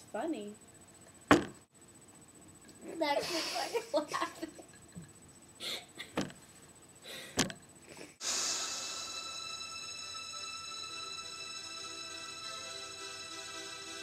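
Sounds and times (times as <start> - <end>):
electronic music with held tones: 8.7 - 14.0.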